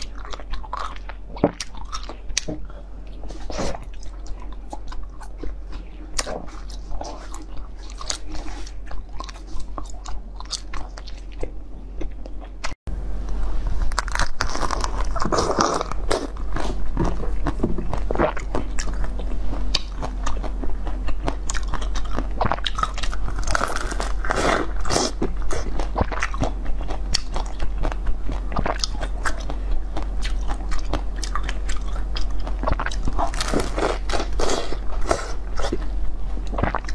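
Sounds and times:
wet chewing of jelly: 0.0 - 12.8, 13.9 - 36.9
crunchy bites of dessert: 13.9 - 19.0, 19.8 - 35.8.

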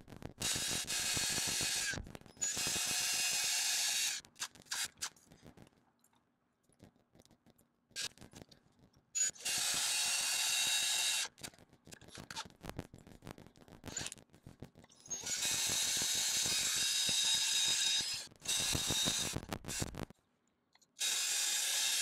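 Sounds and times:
drill grinding into brick: 0.4 - 4.9, 9.2 - 11.3, 15.1 - 19.9, 21.0 - 22.0
rapid small clicks and knocks: 4.2 - 9.1, 11.3 - 21.0.

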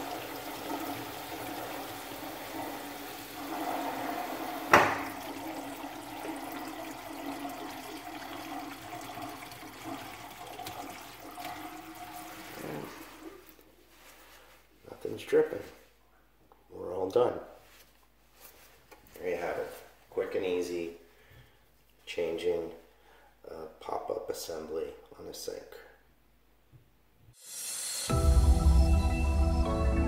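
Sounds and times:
sink water draining: 0.0 - 13.6
sharp knock: 4.7 - 5.1.

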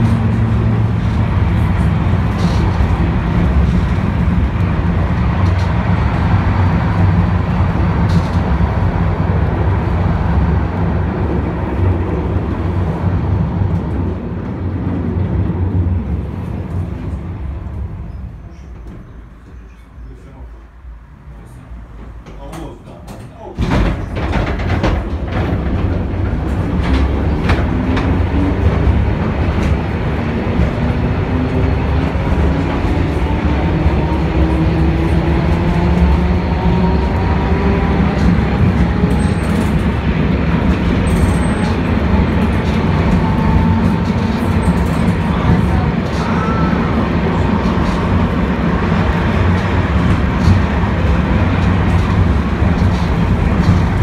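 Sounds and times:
tram wheels rumbling on rails: 0.0 - 54.0.

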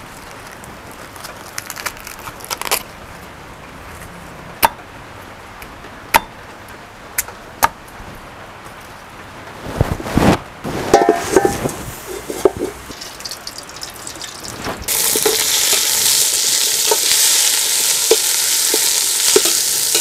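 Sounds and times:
corn husks rustling and tearing: 0.0 - 3.0, 9.8 - 20.0.

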